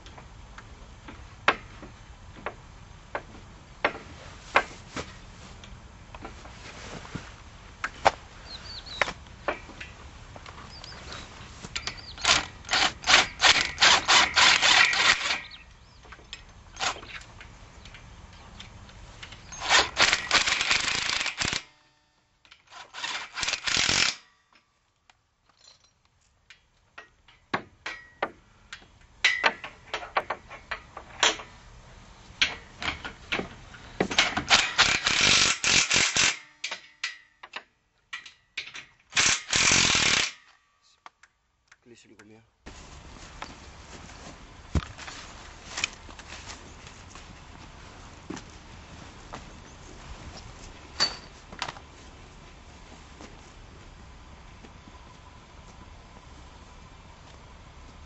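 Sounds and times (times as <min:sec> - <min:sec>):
cordless drill clicking on steel rail: 0:11.8 - 0:15.6, 0:19.3 - 0:21.7, 0:22.5 - 0:24.3, 0:34.2 - 0:37.6, 0:39.1 - 0:40.5.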